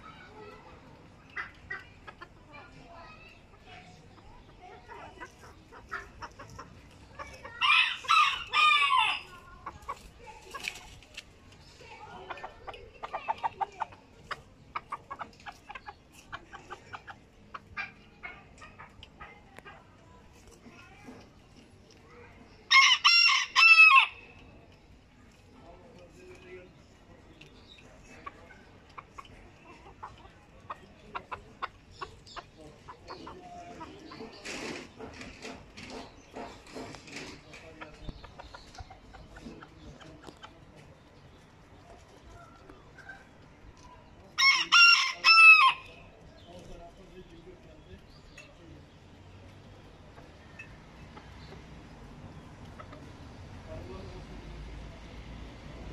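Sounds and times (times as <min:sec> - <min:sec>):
soft clucking: 0:00.0 - 0:22.6, 0:24.1 - 0:47.4, 0:48.0 - 0:54.0
chickens pecking on a board: 0:00.0 - 0:54.9
rustle: 0:04.8 - 0:12.4.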